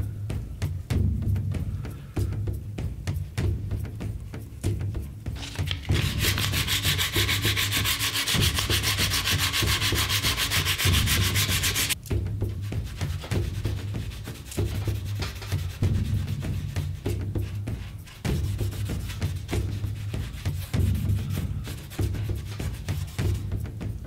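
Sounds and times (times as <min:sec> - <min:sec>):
sandpaper rubbing on wood: 0:05.4 - 0:12.0, 0:12.8 - 0:23.5.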